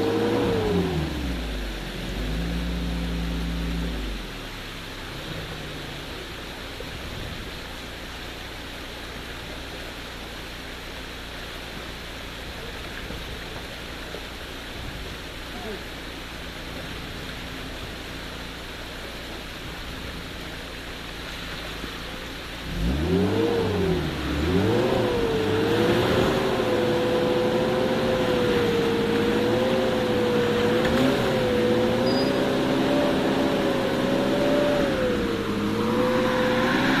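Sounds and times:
off-road engine revving: 0:00.0 - 0:07.6, 0:19.7 - 0:37.0
rushing stream water: 0:00.0 - 0:37.0.

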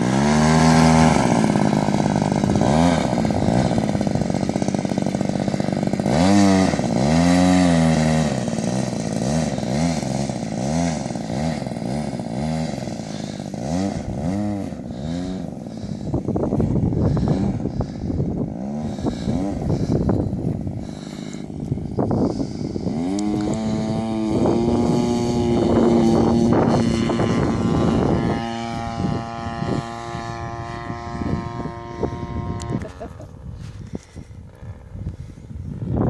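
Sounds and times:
model airplane engine revving: 0:00.0 - 0:36.0.

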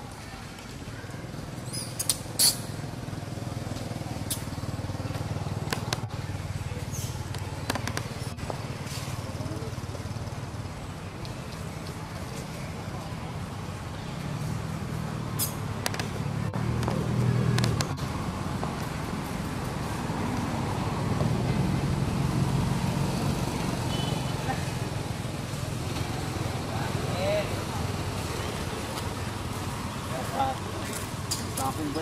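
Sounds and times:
sharp clicks: 0:15.4 - 0:16.1.

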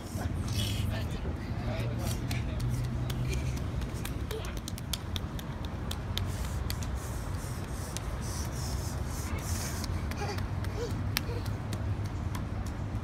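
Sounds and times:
bare feet slapping on tiles: 0:02.2 - 0:08.2.

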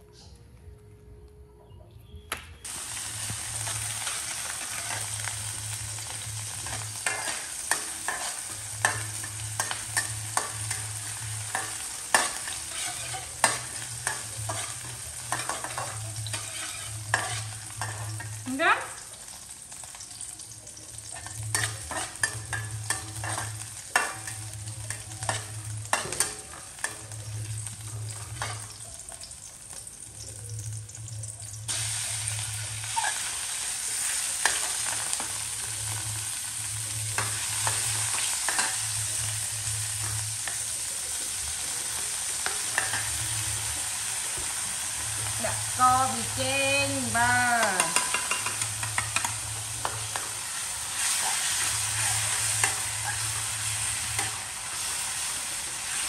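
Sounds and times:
frying sizzle: 0:02.6 - 0:56.0
metal spatula scraping wok: 0:03.4 - 0:18.4, 0:21.0 - 0:28.8, 0:47.9 - 0:56.0.

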